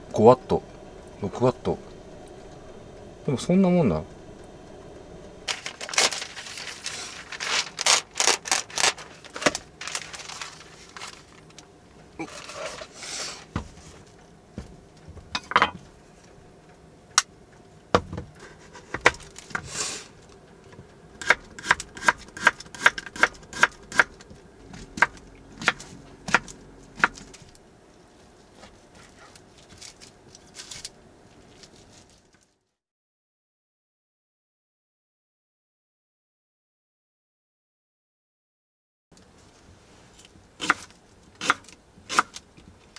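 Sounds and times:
knife chopping on wooden board: 21.2s - 24.1s, 24.8s - 27.3s, 40.6s - 42.3s.

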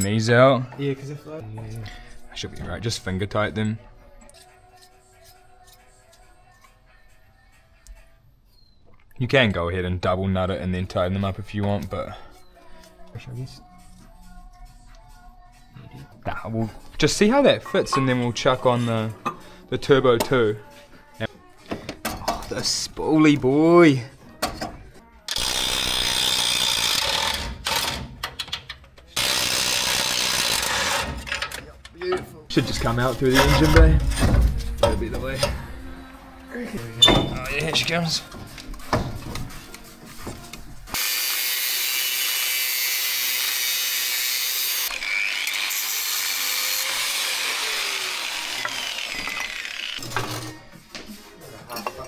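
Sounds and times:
angle grinder cutting steel pipe: 25.3s - 28.0s, 29.2s - 31.2s, 41.0s - 50.6s
power tool running: 29.2s - 31.1s, 41.0s - 50.5s.

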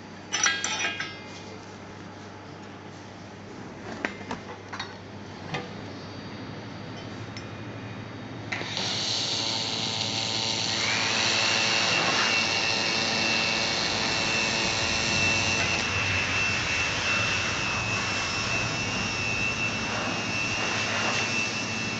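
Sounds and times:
high whine: 5.9s - 21.9s
laser welder hiss: 8.6s - 21.9s.

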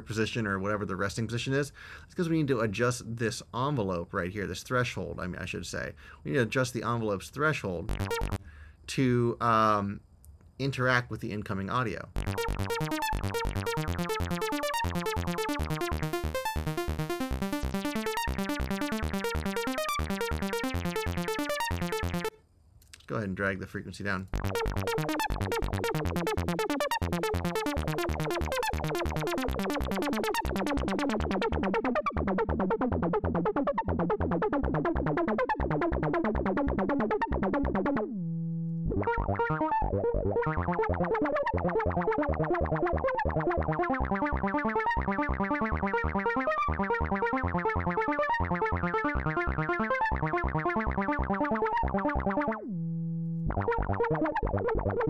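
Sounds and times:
fast arpeggiated synth line: 7.9s - 8.4s, 12.1s - 22.3s, 24.3s - 38.2s, 38.9s - 55.0s
held low synth tone: 7.9s - 8.4s, 12.1s - 22.4s, 24.3s - 55.0s.

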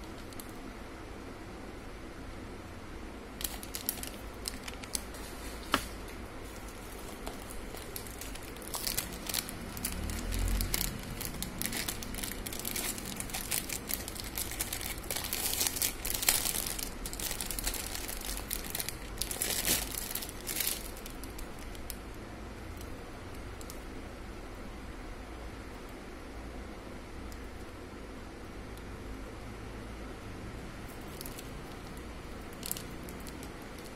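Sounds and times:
plastic packaging crinkling: 0.0s - 0.6s, 3.4s - 22.0s, 31.0s - 33.9s.

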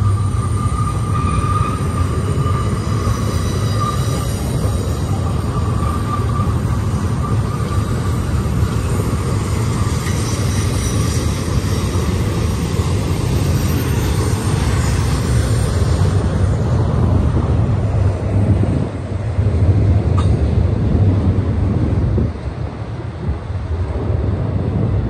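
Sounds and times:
faint high squeal: 0.0s - 8.4s
train wheels rumbling on rail: 0.0s - 25.0s.

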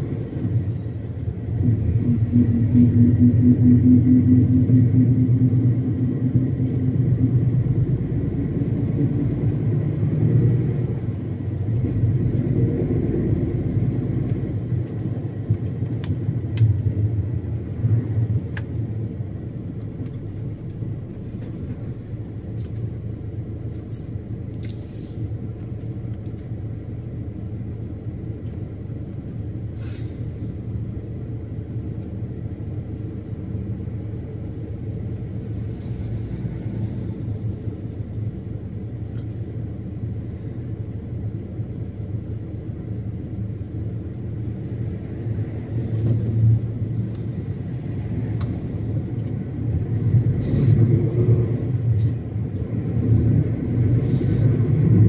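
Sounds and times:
diesel truck engine drone: 0.0s - 55.0s
short hisses: 24.7s - 25.4s, 29.8s - 30.4s.

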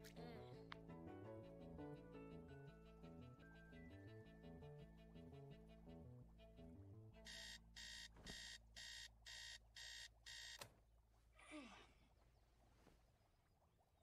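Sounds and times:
digital alarm clock beeping: 7.3s - 10.6s.

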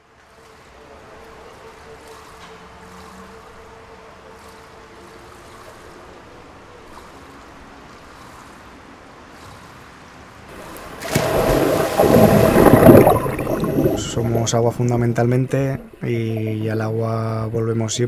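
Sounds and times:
swimming pool hall ambience: 0.0s - 18.0s
swimmer diving into pool: 10.5s - 16.6s
water splashing and bubbling: 10.5s - 16.8s.

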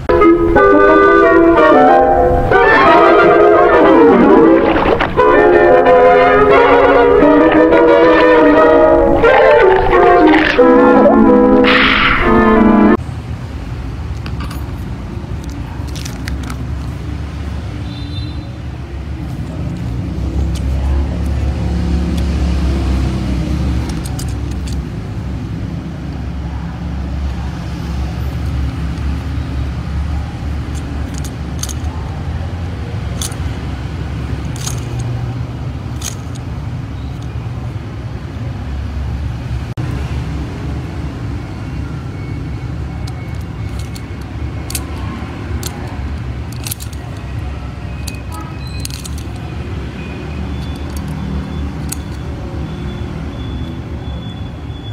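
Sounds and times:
sharp clicks and crackles: 14.1s - 17.0s, 23.6s - 25.0s, 30.5s - 32.1s, 33.0s - 33.7s, 34.3s - 37.4s, 43.0s - 52.4s.

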